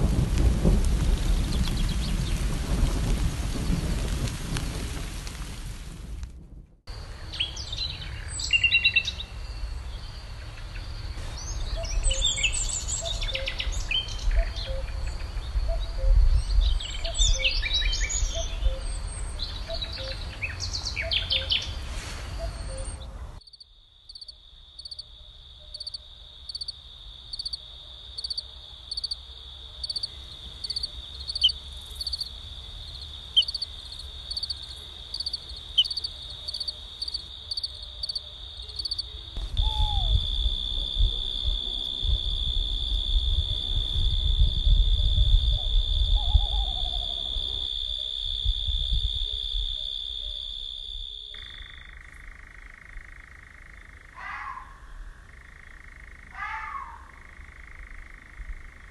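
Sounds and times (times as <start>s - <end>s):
crickets trilling: 6.9s - 58.9s
songbirds singing: 7.1s - 21.8s, 32.9s - 40.3s.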